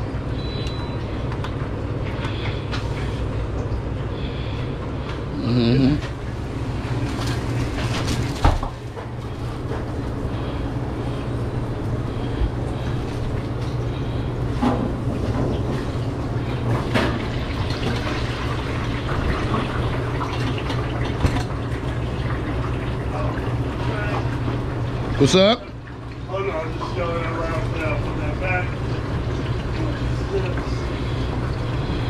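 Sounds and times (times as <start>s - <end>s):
low mechanical hum: 0.0s - 32.0s
kitchen knocks and clatters: 7.2s - 8.8s.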